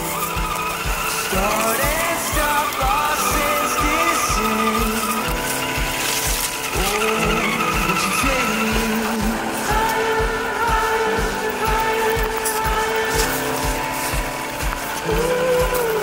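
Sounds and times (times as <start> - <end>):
music with drum beat: 0.0 - 16.0.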